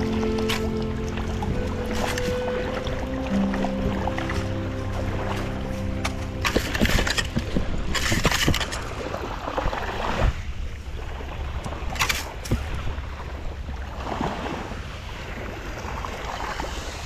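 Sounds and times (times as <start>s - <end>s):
low rumble: 0.0s - 9.4s
gravel rattling through metal scoop: 6.0s - 9.0s.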